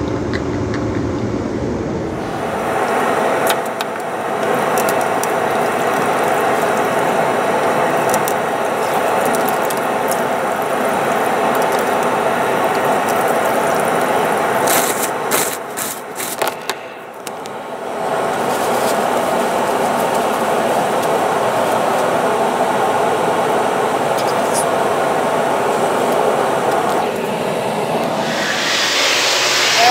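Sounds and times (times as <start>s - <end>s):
steady rushing noise: 0.8s - 8.7s, 24.9s - 29.9s.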